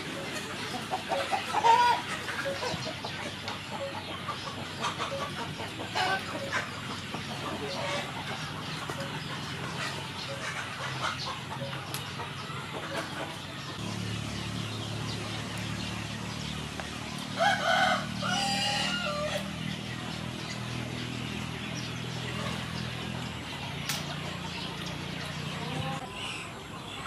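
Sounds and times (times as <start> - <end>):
chickens clucking: 0.0 - 27.0
rooster crowing: 17.4 - 19.5.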